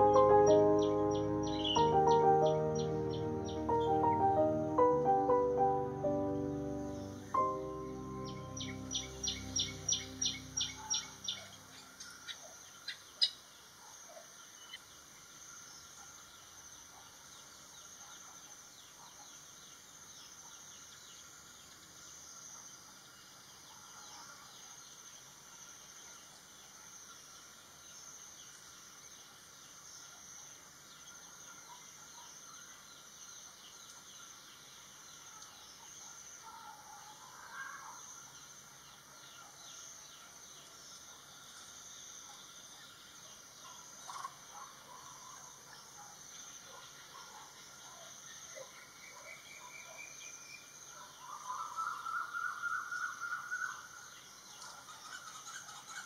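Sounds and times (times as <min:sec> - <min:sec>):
music: 0:00.0 - 0:11.3
bird chirps: 0:00.0 - 0:13.4
high-pitched background hiss: 0:00.0 - 0:18.9.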